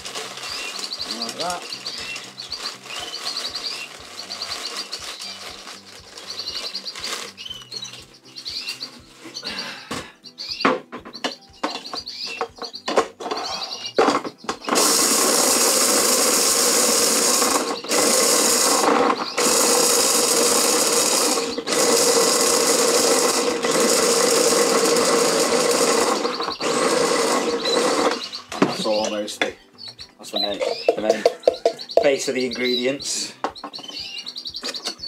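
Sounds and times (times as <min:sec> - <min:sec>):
electric chopper blitzing vegetables: 0:00.0 - 0:07.4, 0:14.6 - 0:28.9.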